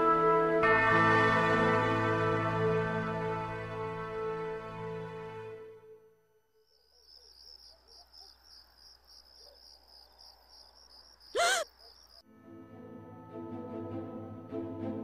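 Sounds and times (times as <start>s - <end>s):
crickets chirping: 6.5s - 12.3s
woman screaming: 11.4s - 11.7s.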